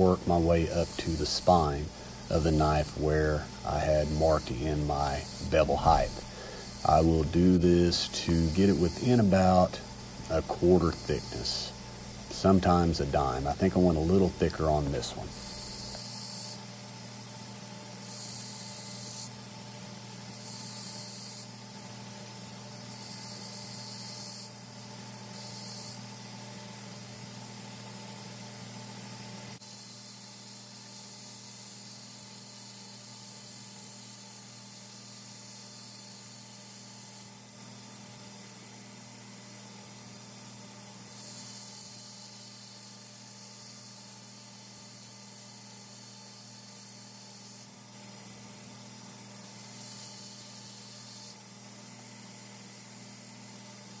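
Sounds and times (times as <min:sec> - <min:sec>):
belt grinder motor hum: 0:00.0 - 0:16.7, 0:17.8 - 0:19.4, 0:20.1 - 0:21.8, 0:41.0 - 0:48.0
knife blade grinding hiss: 0:14.2 - 0:16.6.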